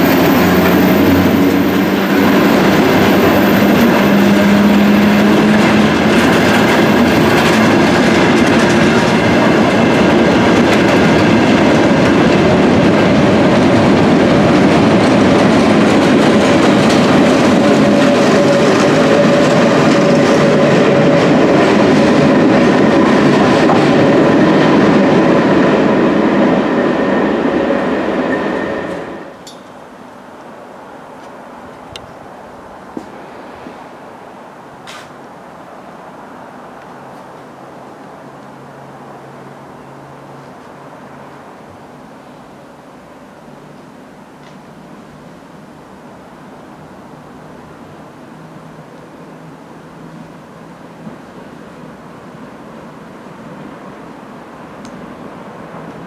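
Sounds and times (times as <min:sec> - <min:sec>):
train wheels rolling on track: 0:00.0 - 0:29.8, 0:30.4 - 0:35.3, 0:47.4 - 0:56.0.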